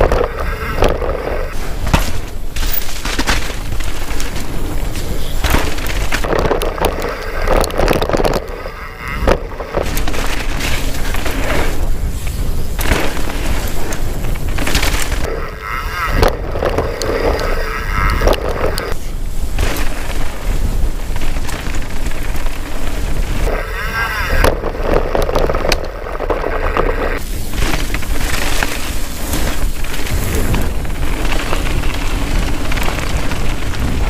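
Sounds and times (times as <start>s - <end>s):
bike tyres and frame rattling: 0.0s - 34.0s
wind buffeting microphone: 0.0s - 34.0s.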